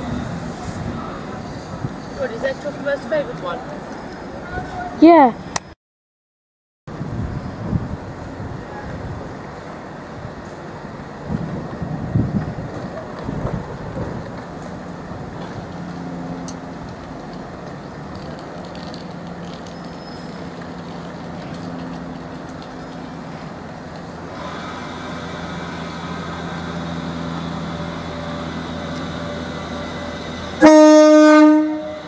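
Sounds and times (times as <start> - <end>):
train running hum: 0.0 - 5.6, 6.9 - 32.0
train horn: 30.5 - 32.0.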